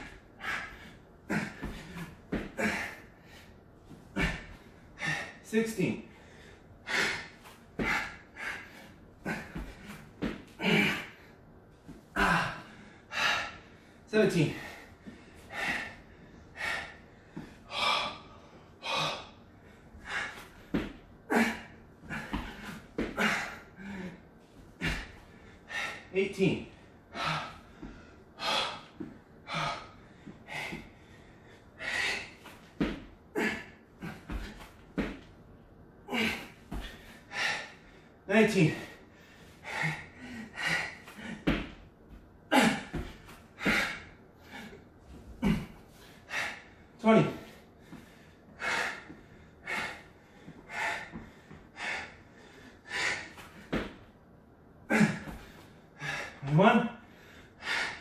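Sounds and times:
man breathing hard: 0:00.0 - 0:35.3, 0:36.0 - 0:54.2, 0:54.8 - 0:58.0.

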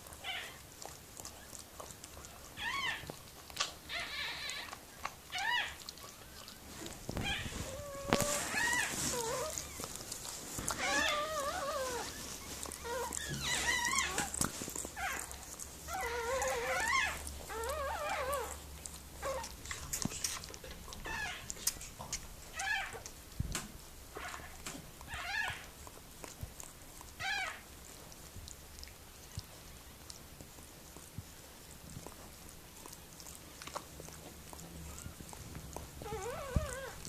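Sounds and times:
wet licking clicks: 0:00.0 - 0:37.0
puppy crying in squeals: 0:02.6 - 0:03.1, 0:03.9 - 0:05.8, 0:07.2 - 0:09.9, 0:10.7 - 0:14.4, 0:15.9 - 0:18.6, 0:21.0 - 0:21.5, 0:22.5 - 0:23.0, 0:24.2 - 0:25.7, 0:27.2 - 0:27.6, 0:36.0 - 0:37.0.

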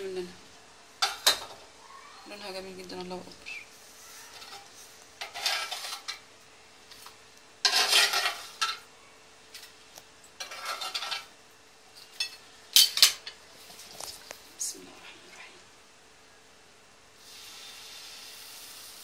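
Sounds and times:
metal spatula scraping tray: 0:04.2 - 0:06.2, 0:07.6 - 0:08.8, 0:10.4 - 0:11.3.

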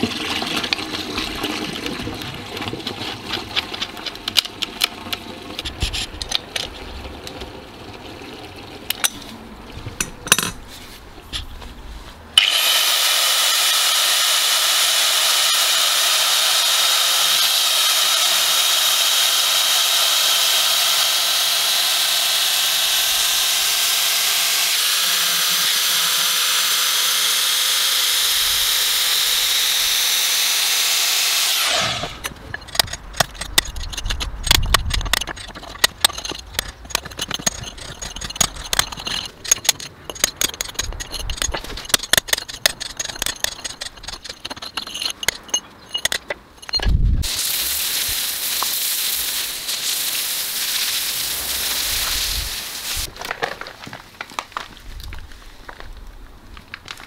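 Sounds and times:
angle grinder cutting mortar: 0:12.4 - 0:53.1.

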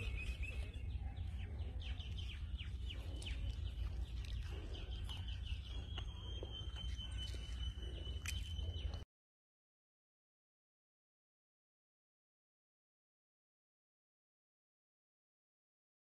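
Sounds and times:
birds chirping: 0:00.0 - 0:09.0.

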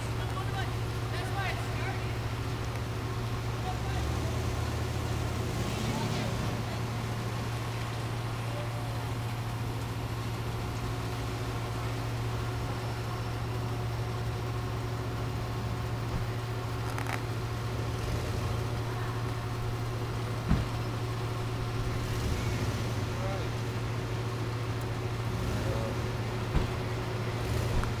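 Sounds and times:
low engine drone: 0:00.0 - 0:28.0
short thump: 0:20.4 - 0:20.8, 0:26.5 - 0:26.8.

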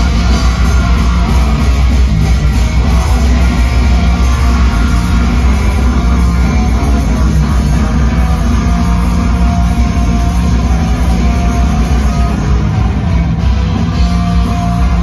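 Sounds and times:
heavy metal band playing live: 0:00.0 - 0:15.0.

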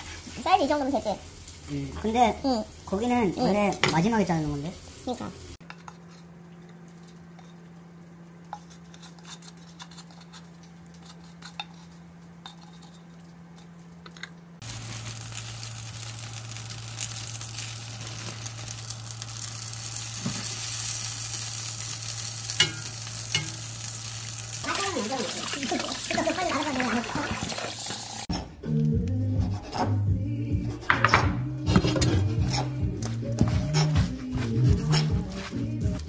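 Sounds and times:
food sizzling in a pan: 0:00.0 - 0:05.6, 0:14.6 - 0:28.3.

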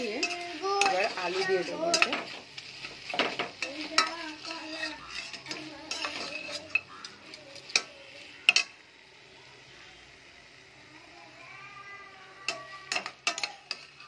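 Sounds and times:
stirring and scraping in pot: 0:00.0 - 0:08.8, 0:12.4 - 0:14.0
faint steady hiss: 0:00.0 - 0:14.0
light sizzle: 0:00.0 - 0:14.0
utensil clinking against pot: 0:12.5 - 0:14.0.

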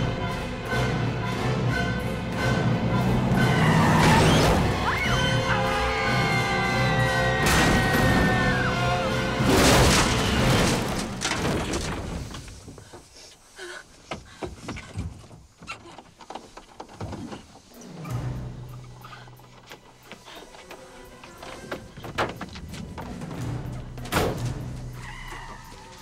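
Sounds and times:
tense music: 0:00.0 - 0:11.2, 0:17.6 - 0:26.0
loud crash: 0:09.3 - 0:12.2.

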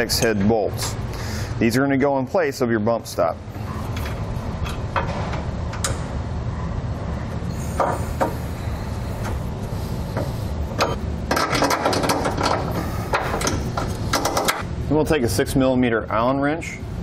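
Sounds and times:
steady low hum: 0:00.0 - 0:17.0
rapid clicking and rattling: 0:10.8 - 0:14.6.

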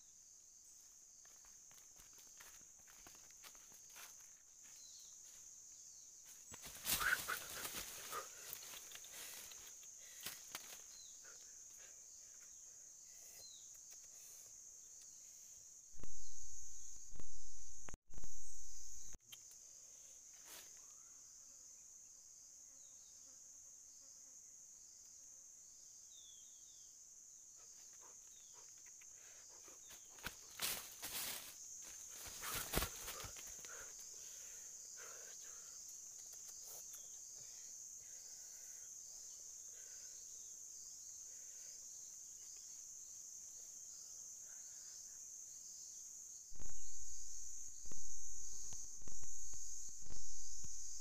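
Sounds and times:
insects buzzing: 0:00.0 - 0:51.0
footsteps on dry leaves: 0:30.3 - 0:33.3.

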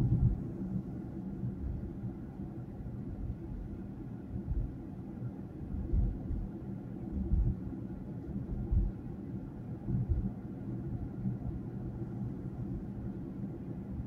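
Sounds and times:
dull low thumps: 0:00.0 - 0:00.4, 0:05.8 - 0:06.5, 0:07.2 - 0:07.6, 0:08.5 - 0:09.0, 0:09.9 - 0:10.3
car interior engine and road noise: 0:00.0 - 0:14.0.

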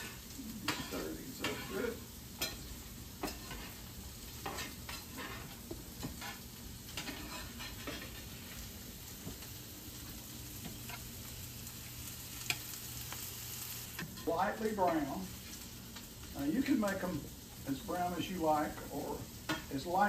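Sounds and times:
wooden spoon scraping a pan: 0:00.0 - 0:11.1
vegetables sizzling in a skillet: 0:00.0 - 0:20.0.

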